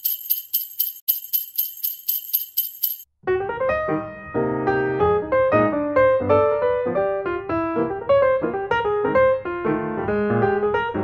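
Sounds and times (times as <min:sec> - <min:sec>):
jingle bells shaken: 0:00.0 - 0:03.1
piano melody with chords: 0:03.2 - 0:11.0.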